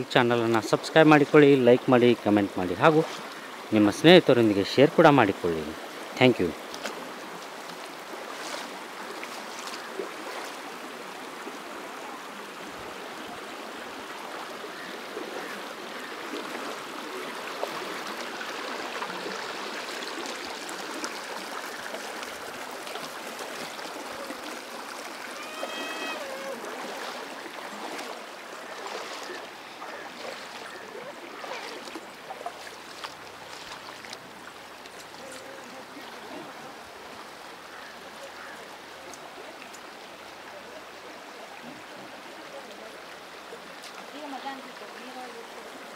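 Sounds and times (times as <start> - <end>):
river water over rocks: 0.0 - 45.9
short pitched call: 25.4 - 26.6.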